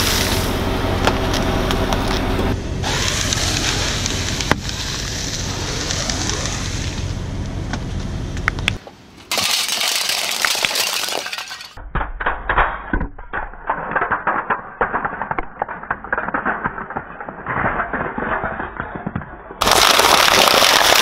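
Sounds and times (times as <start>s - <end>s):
tyre crunching foam blocks: 19.6s - 21.0s.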